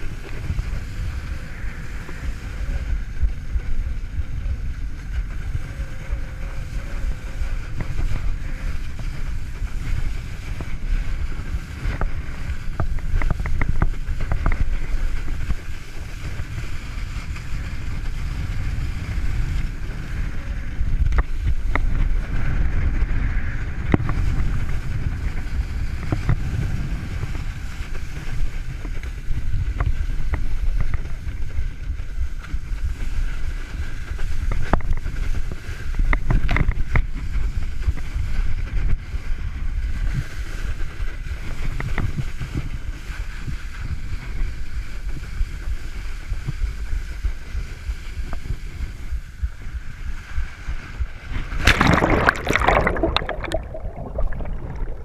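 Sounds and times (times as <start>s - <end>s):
wind buffeting microphone: 0.0s - 55.0s
water spray rushing: 51.4s - 55.0s.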